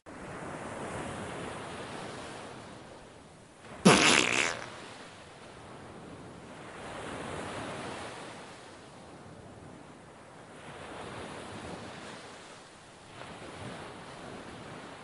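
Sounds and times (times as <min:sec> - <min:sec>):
wind: 0:00.0 - 0:15.0.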